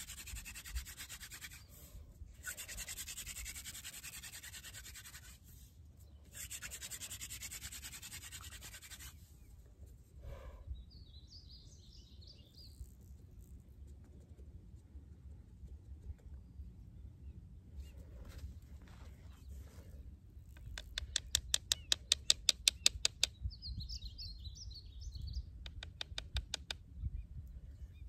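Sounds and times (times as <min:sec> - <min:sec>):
scraping on wooden arrow shaft: 0:00.0 - 0:10.0
bird chirping: 0:10.7 - 0:13.0, 0:20.6 - 0:28.0.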